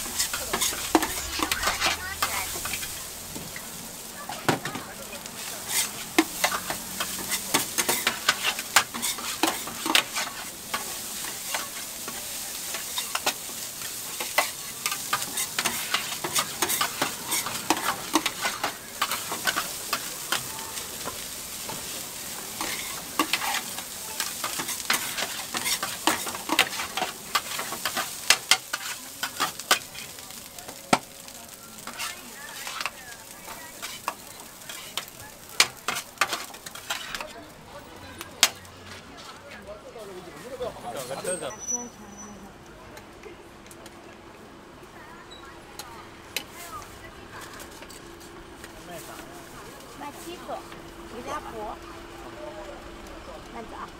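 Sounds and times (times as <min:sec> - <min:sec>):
metal spatula scraping griddle: 0:00.0 - 0:30.2, 0:31.8 - 0:37.3
steady sizzle: 0:00.0 - 0:38.8, 0:39.5 - 0:42.8, 0:44.8 - 0:53.9.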